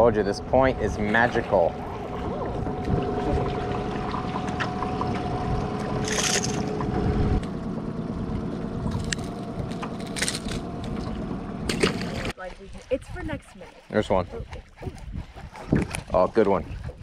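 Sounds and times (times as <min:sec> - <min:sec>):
wind on microphone: 0:00.0 - 0:07.4, 0:12.7 - 0:17.0
boat motor humming: 0:00.0 - 0:17.0.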